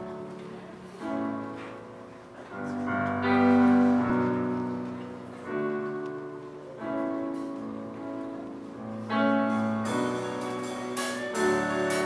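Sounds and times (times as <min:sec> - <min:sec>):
piano chords on keyboard: 0:00.0 - 0:12.0.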